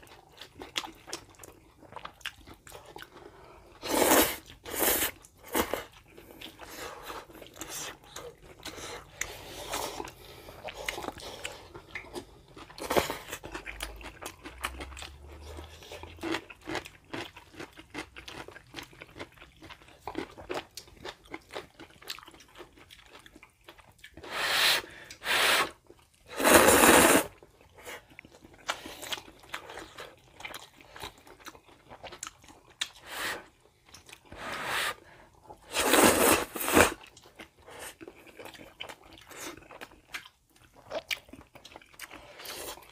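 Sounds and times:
chewing noodles: 0.0s - 42.9s
loud slurps: 3.8s - 5.7s, 24.2s - 25.7s, 26.3s - 27.4s, 35.7s - 37.0s.

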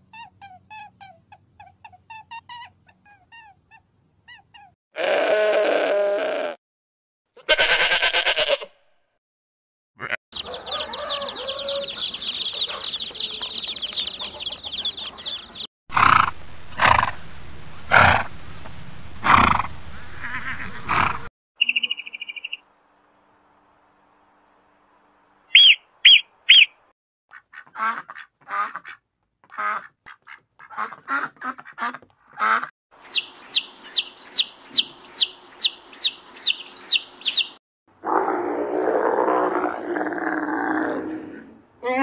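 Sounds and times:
animal calls: 10.0s - 16.2s, 25.5s - 26.7s
fast high chirping: 10.4s - 15.7s, 25.5s - 26.7s, 33.0s - 37.6s.

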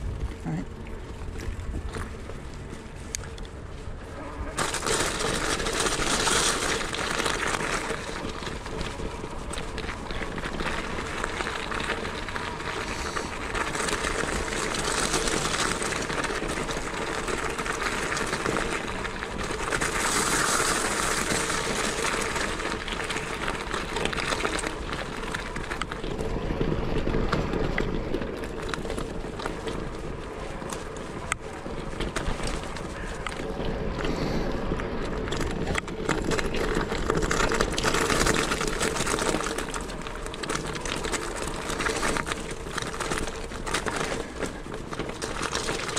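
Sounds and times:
bike tyre and road noise: 0.0s - 45.9s.

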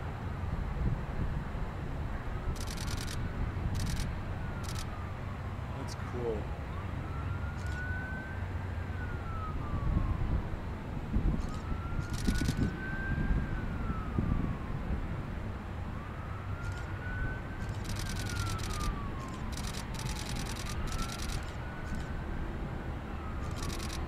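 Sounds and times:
emergency siren wailing: 2.5s - 24.0s
helicopters rumbling: 9.2s - 24.0s.

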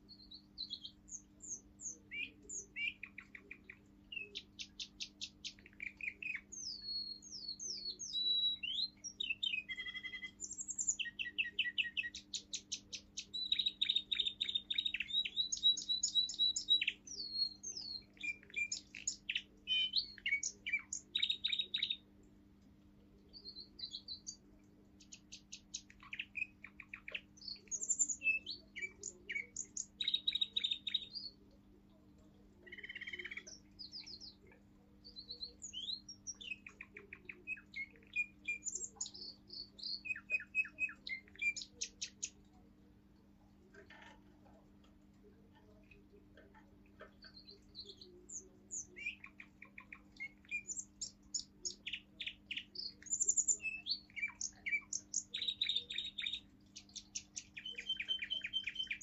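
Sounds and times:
canary singing trills: 0.0s - 59.0s.

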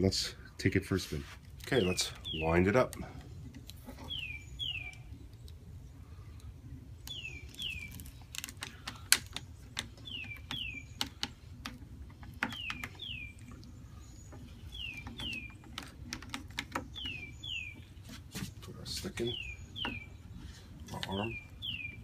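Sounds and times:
bird chirping: 1.6s - 22.0s
wooden gear clicking: 14.3s - 17.8s.

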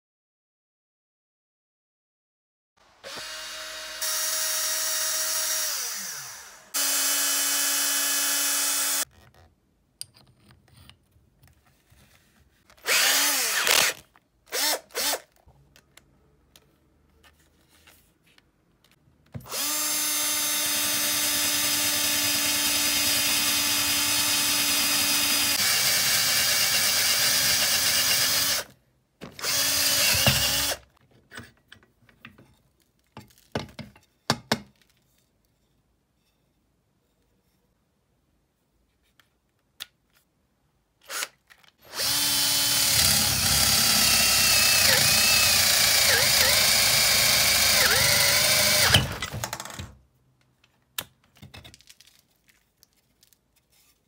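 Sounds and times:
cordless drill motor running: 3.0s - 9.1s, 12.8s - 15.3s, 19.5s - 28.7s, 29.4s - 30.8s, 41.1s - 49.8s
drill drilling into wood: 3.0s - 9.1s, 12.8s - 15.3s, 19.5s - 28.7s, 29.4s - 30.8s, 41.9s - 49.8s.

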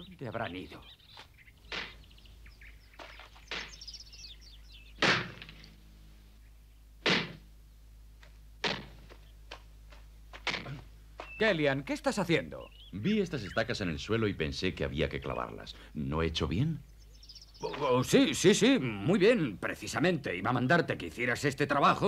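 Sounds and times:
mallet pounding wooden stake: 8.6s - 9.2s.

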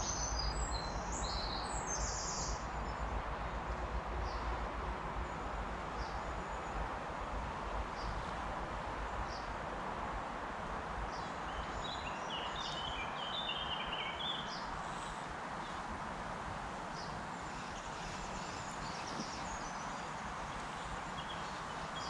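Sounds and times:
bird song notes: 0.0s - 3.1s, 11.1s - 14.7s, 17.0s - 22.0s
steady outdoor hiss: 0.0s - 22.0s.

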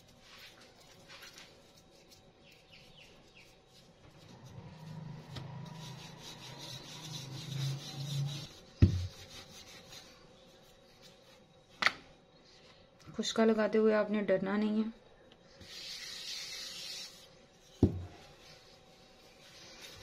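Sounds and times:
rolling pin rolling dough: 0.0s - 11.4s.

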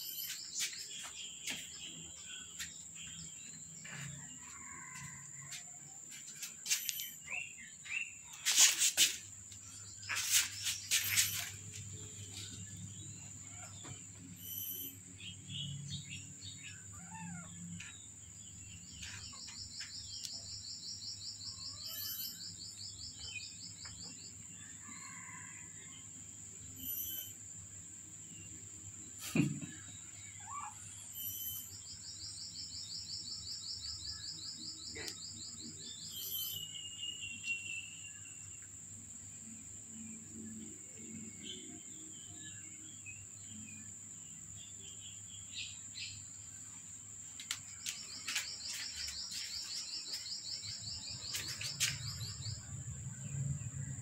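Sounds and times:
birds chirping: 47.2s - 53.9s.

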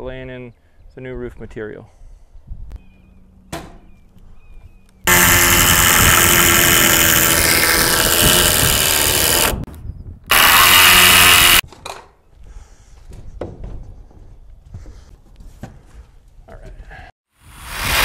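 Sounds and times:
handheld power tool running: 5.1s - 9.7s, 10.3s - 11.6s.

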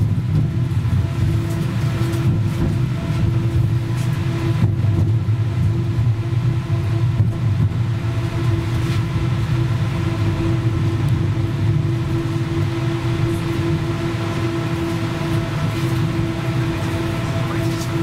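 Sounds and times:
electrical hum: 0.0s - 18.0s
tram rumbling on track: 0.0s - 18.0s.

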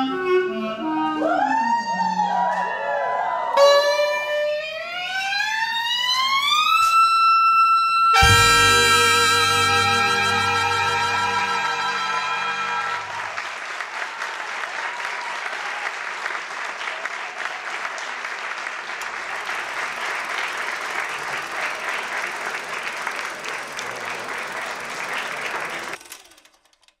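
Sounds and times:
audience applauding: 8.2s - 26.4s.

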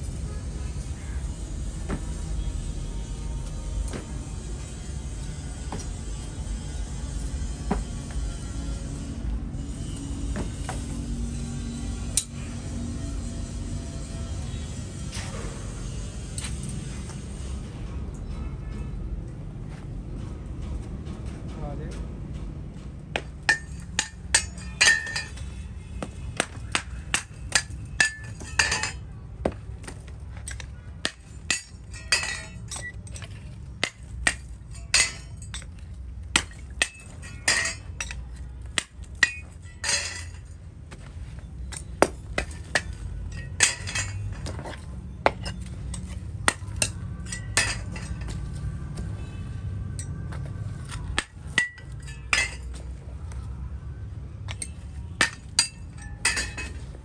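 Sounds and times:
metallic knocks and clinks: 23.1s - 29.1s, 29.8s - 49.2s, 49.9s - 53.0s, 54.5s - 57.0s.

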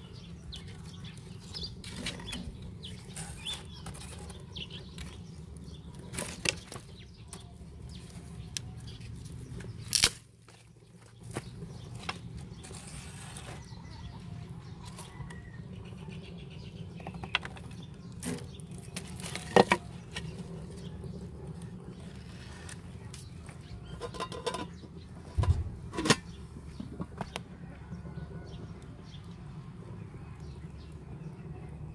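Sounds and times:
wood knocking and scraping: 19.0s - 20.3s.

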